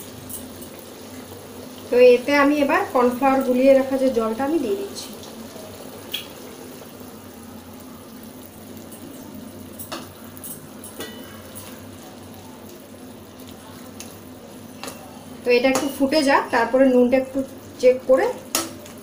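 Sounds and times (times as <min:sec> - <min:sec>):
sauce bubbling: 0:00.0 - 0:19.0.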